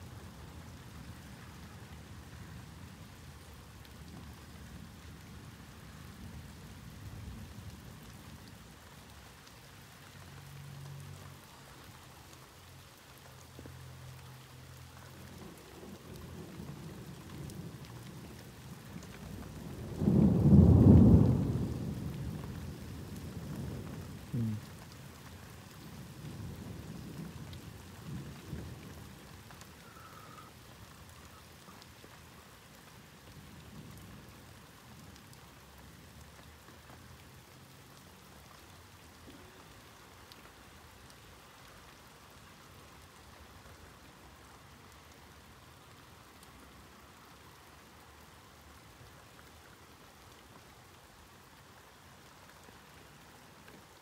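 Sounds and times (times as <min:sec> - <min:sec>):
steady rain: 0:00.0 - 0:54.0
rumbles of thunder: 0:15.4 - 0:25.2, 0:25.8 - 0:29.9
loud thunderclap: 0:19.9 - 0:22.2.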